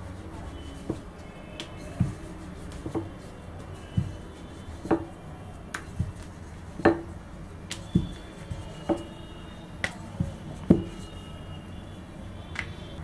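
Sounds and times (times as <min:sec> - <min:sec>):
rolling pin knocking on worktop: 0:03.9 - 0:04.2, 0:04.8 - 0:05.1, 0:06.8 - 0:07.1, 0:07.9 - 0:08.2, 0:10.2 - 0:11.0.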